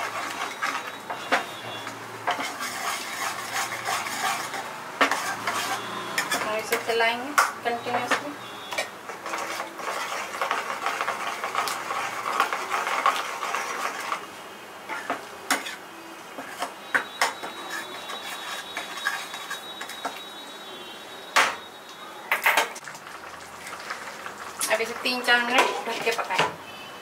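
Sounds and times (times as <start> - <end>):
ladle scraping a pan: 0.0 - 6.8, 7.8 - 14.3, 14.9 - 15.8, 16.4 - 20.2.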